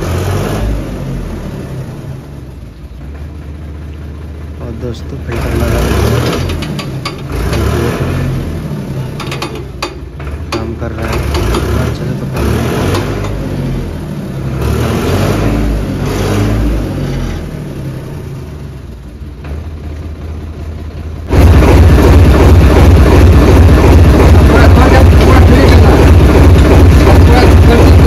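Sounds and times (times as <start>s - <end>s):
tractor diesel engine revving: 0.0s - 28.0s
clatters: 5.3s - 8.2s, 8.9s - 13.5s.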